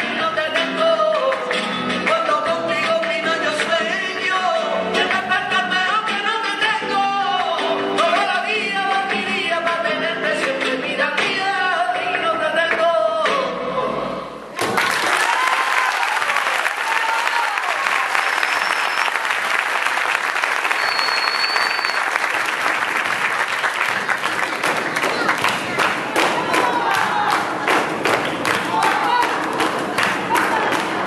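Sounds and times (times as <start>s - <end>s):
flamenco singing: 0.0s - 14.3s, 23.9s - 31.0s
audience applause: 14.6s - 31.0s
short high whistles: 18.3s - 19.2s, 20.6s - 22.2s.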